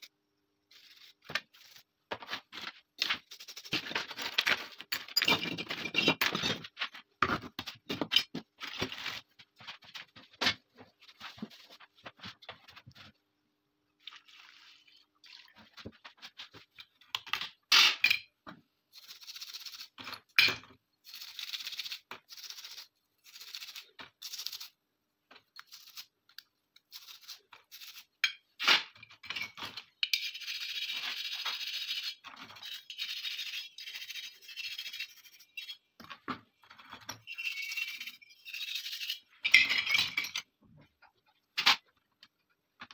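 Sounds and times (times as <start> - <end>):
metal parts clicking and clinking: 3.4 - 6.6.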